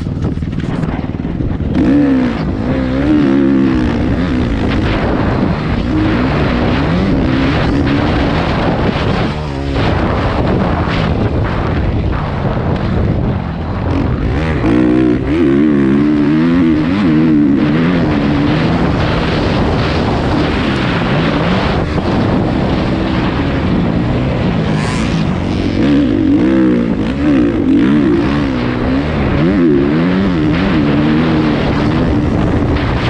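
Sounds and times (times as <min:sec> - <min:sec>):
dirt bike engine revving: 0:00.0 - 0:33.0
wind buffeting microphone: 0:00.0 - 0:33.0.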